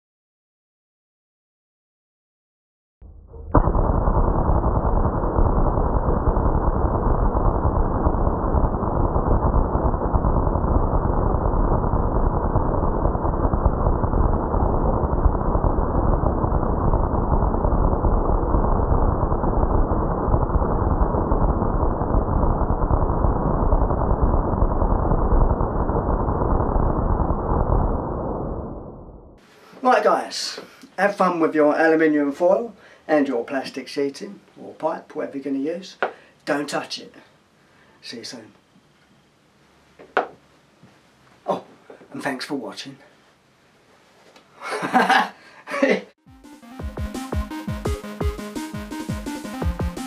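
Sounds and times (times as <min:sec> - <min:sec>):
high-voltage arcs crackling: 0:03.3 - 0:29.3.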